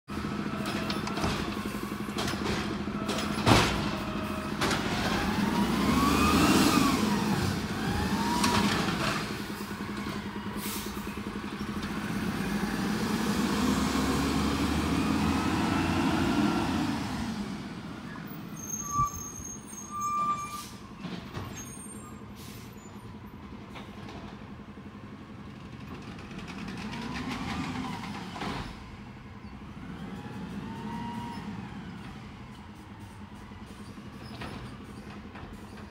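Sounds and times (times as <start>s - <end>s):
truck engine revving: 0.1s - 18.4s, 26.0s - 28.5s, 29.6s - 32.4s
air brake hisses: 10.6s - 11.2s, 20.4s - 20.9s, 22.2s - 23.0s.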